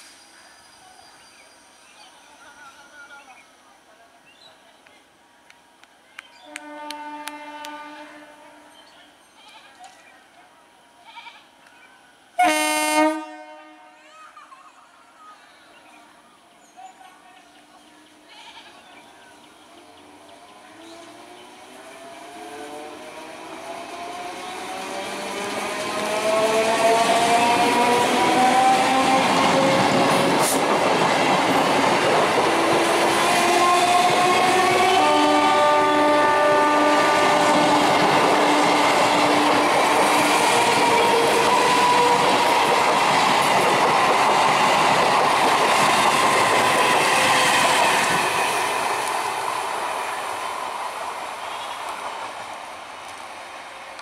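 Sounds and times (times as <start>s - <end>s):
train wheels clattering on track: 21.8s - 35.5s, 36.9s - 50.7s.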